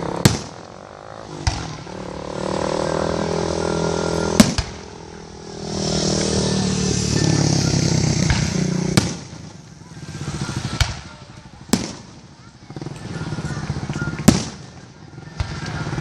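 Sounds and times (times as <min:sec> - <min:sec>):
firework shells booming: 0:00.0 - 0:02.2, 0:04.3 - 0:05.1, 0:08.2 - 0:12.4, 0:14.2 - 0:14.8.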